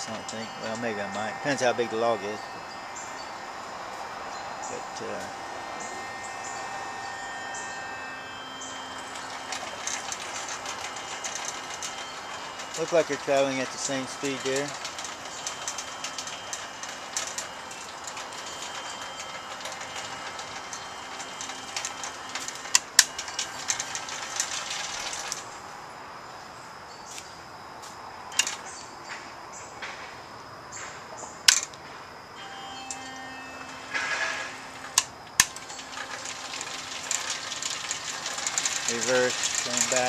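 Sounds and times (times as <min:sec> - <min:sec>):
electric motor whine: 0:00.0 - 0:25.9, 0:32.4 - 0:40.0
chain rattle: 0:08.7 - 0:25.5, 0:33.9 - 0:40.0
sharp clicks and knocks: 0:28.4 - 0:28.7, 0:31.5 - 0:31.8, 0:33.8 - 0:40.0.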